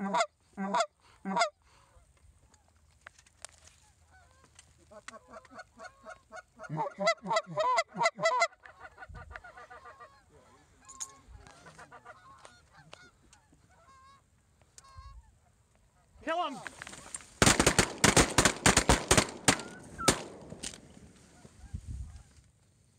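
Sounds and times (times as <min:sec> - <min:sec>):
goose honking: 0:05.1 - 0:16.1.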